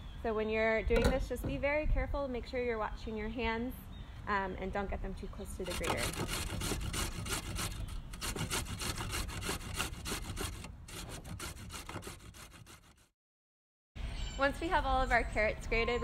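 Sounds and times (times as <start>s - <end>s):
carrot grated on metal grater: 5.6s - 13.0s.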